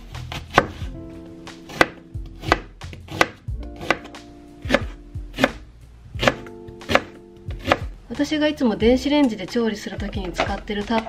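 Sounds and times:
knife chopping on cutting board: 0.2s - 0.9s, 1.6s - 5.6s, 6.2s - 7.9s.

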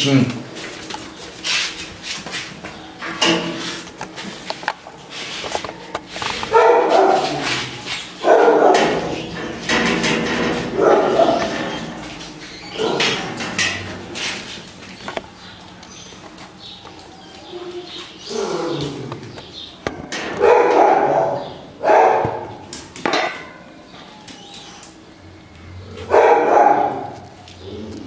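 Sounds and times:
dog barking: 6.5s - 7.6s, 8.2s - 9.1s, 10.8s - 11.5s, 20.4s - 22.5s, 26.1s - 27.2s.

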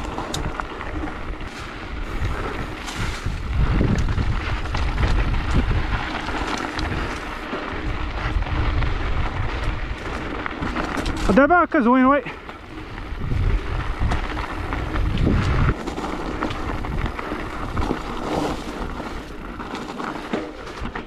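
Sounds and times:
bike knocks and rattles: 0.0s - 11.5s, 12.4s - 21.0s
wind rumble on microphone: 0.0s - 11.5s, 12.2s - 19.8s
bike tyres over stones: 0.0s - 21.0s.

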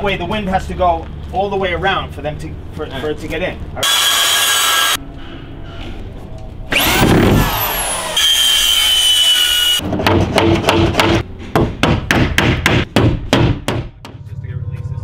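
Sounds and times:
circular saw cutting plywood: 3.8s - 5.0s, 6.7s - 9.8s.

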